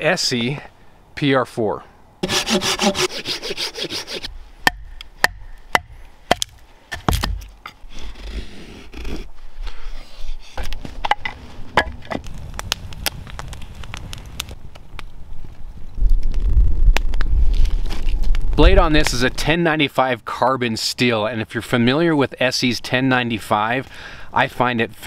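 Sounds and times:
saw cutting wood: 2.2 - 4.3
knife carving wood: 2.2 - 10.7.

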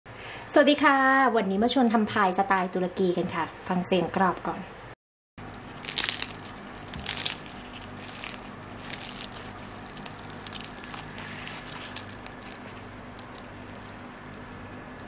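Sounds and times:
low steady hum: 5.4 - 15.0
pastry crust crackling when torn: 5.4 - 15.0.

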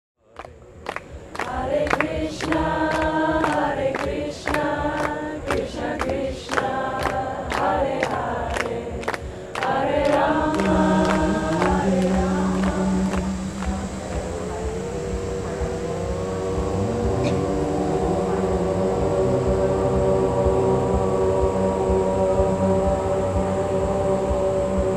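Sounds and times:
choir singing held notes: 1.0 - 24.9
steady beat: 9.6 - 24.9.

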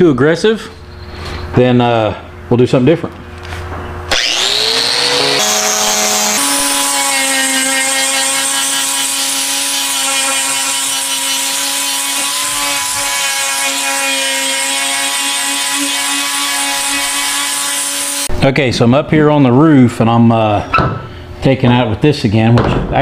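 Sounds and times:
angle grinder grinding metal: 4.1 - 18.3.

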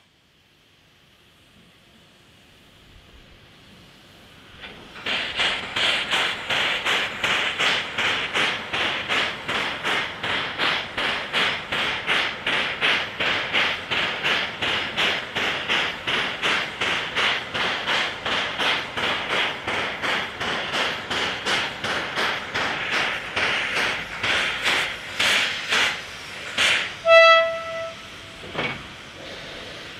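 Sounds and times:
steam air pump panting: 4.6 - 29.9.

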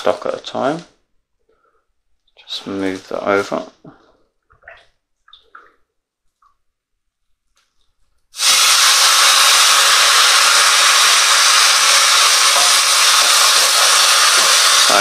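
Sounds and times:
stock sizzling in hot pan: 8.3 - 15.0.

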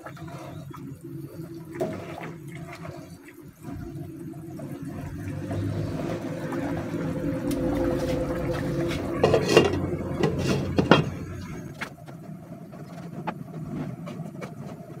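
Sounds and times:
stew simmering in a pot: 0.0 - 15.0
ladle stirring: 4.9 - 11.6.

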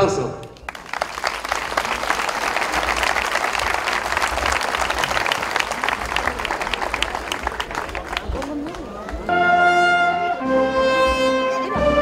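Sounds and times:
crowd applauding: 0.2 - 9.3.

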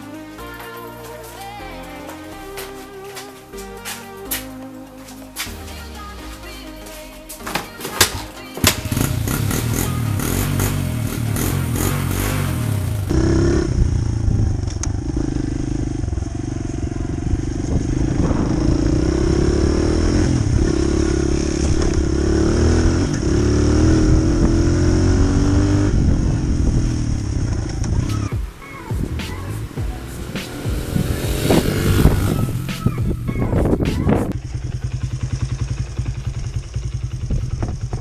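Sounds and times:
dirt bike engine revving: 8.0 - 38.0.

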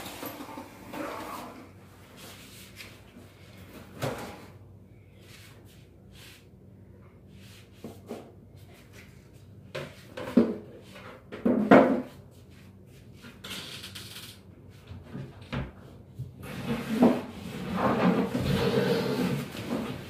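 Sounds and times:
wooden scraping rub: 16.5 - 20.0.

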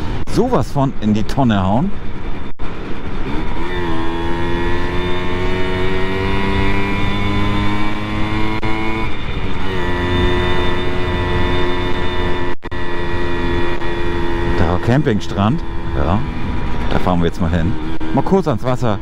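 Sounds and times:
moped engine running: 2.0 - 18.3.

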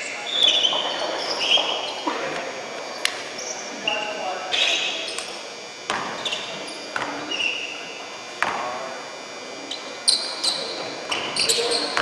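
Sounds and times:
sneaker squeaks: 0.0 - 2.1, 2.8 - 5.3, 5.9 - 8.0, 9.6 - 12.0.

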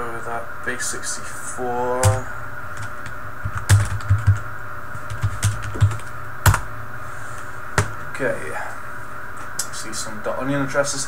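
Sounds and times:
background hum: 0.0 - 11.0
computer keyboard typing: 2.0 - 2.2, 2.8 - 4.4, 5.1 - 6.6.

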